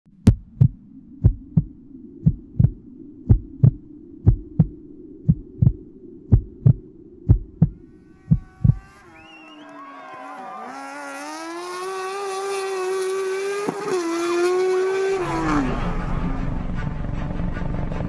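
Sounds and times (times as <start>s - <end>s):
steady low hum: 0.1s - 9.2s
faint rising tones: 0.1s - 9.6s, 14.8s - 18.0s
heartbeat thumps: 0.2s - 8.9s.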